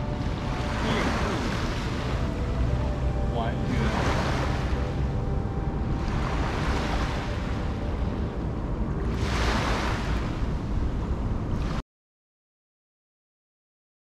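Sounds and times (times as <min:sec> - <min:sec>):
small waves washing on sand: 0:00.0 - 0:02.4, 0:09.1 - 0:10.6
wind rumbling on microphone: 0:00.0 - 0:11.8.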